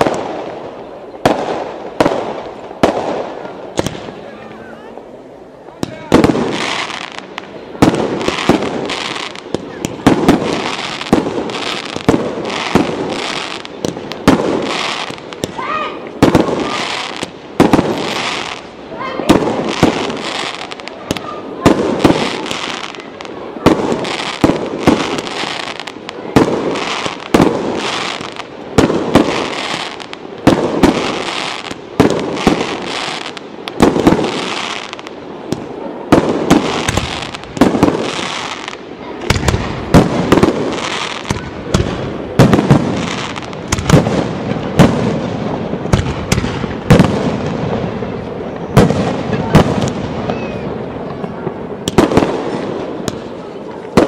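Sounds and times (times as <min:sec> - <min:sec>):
firework shells bursting: 0:23.7 - 0:47.6.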